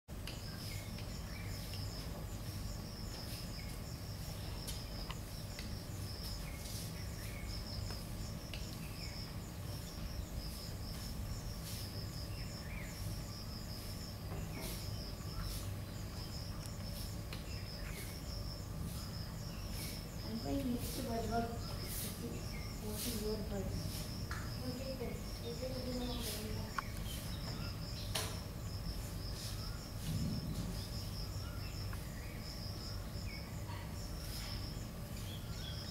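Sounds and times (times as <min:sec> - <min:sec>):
insects trilling: 0:00.2 - 0:35.9
faint bird chirps: 0:03.2 - 0:28.5.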